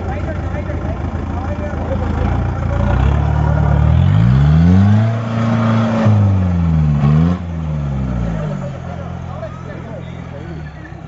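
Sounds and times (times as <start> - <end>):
jeep engine revving hard: 2.0 - 11.0.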